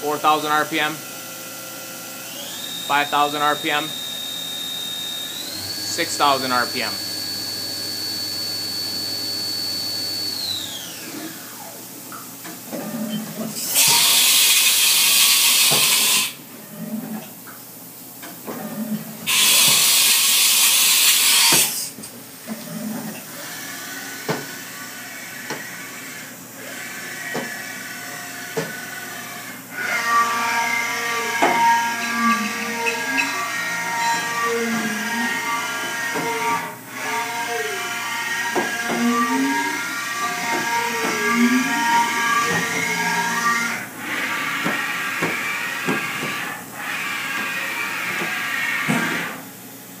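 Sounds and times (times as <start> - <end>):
machine spindle whining: 2.0 - 11.8, 22.7 - 49.4.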